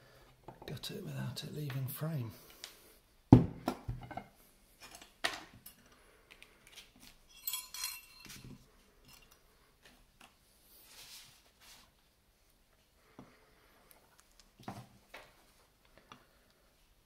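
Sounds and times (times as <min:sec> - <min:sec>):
metal tray clinking: 0:07.3 - 0:08.5.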